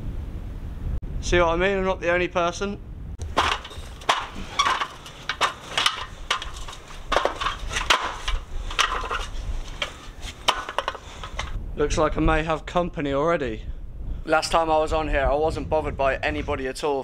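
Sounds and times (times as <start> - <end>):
boots scuffing: 3.2 - 11.6
clanks on metal ladder rungs: 3.2 - 11.6.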